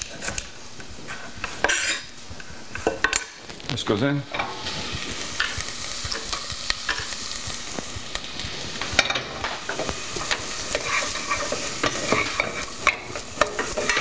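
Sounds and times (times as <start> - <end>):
vegetables sizzling in a frying pan: 0.0 - 14.0
utensil scraping a pan: 1.1 - 2.1, 8.6 - 14.0.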